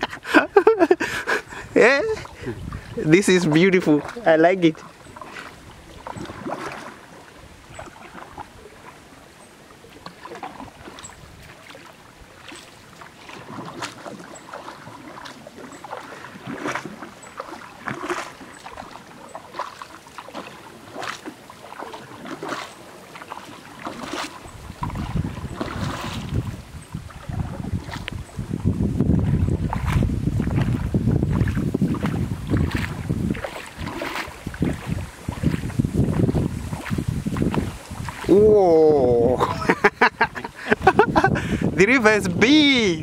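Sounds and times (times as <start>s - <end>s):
wind buffeting microphone: 0.0s - 8.7s, 23.8s - 43.0s
paddle splashing in water: 0.0s - 43.0s.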